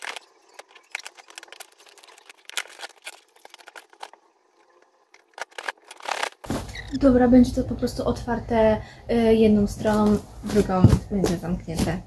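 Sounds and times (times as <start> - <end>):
cardboard parcel being torn open: 5.4 - 6.7.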